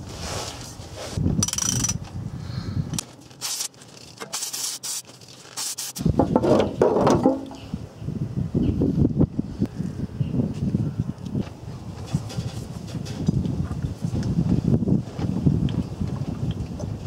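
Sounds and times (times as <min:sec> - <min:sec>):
ratchet wrench clicking: 0:01.4 - 0:02.0.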